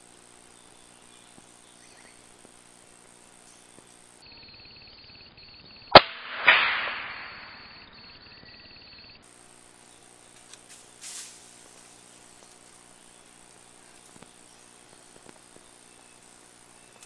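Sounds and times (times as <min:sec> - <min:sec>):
rifle shot: 0:05.9 - 0:07.8.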